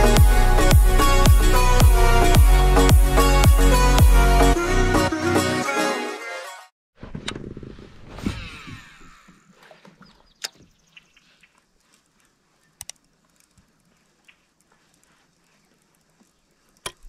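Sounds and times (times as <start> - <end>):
intro music: 0.0 - 6.4
faint sharp clicks: 11.4 - 15.1.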